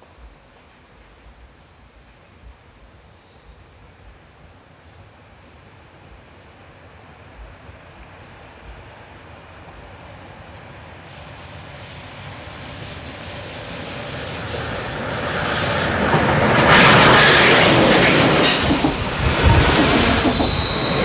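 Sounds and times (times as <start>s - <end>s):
train coaches rolling on track: 8.9s - 21.0s
wheel squeal: 16.8s - 21.0s.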